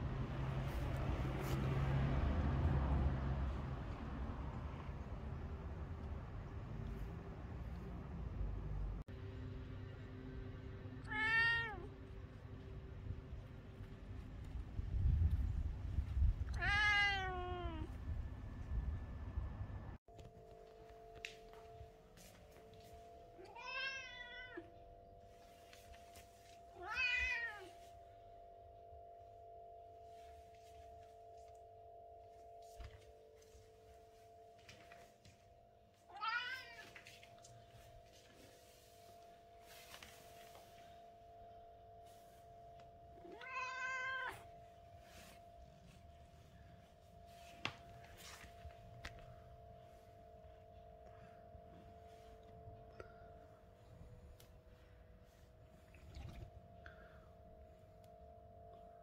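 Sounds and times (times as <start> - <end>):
cat meowing: 11.0 - 11.9, 16.5 - 18.0, 23.4 - 24.7, 26.8 - 27.7, 43.2 - 44.5
faint steady hum: 44.4 - 59.0.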